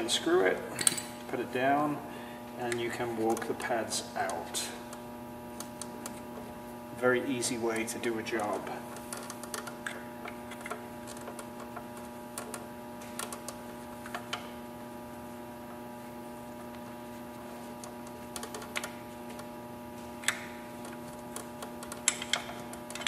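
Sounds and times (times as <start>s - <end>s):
steady electrical hum: 0.0s - 23.0s.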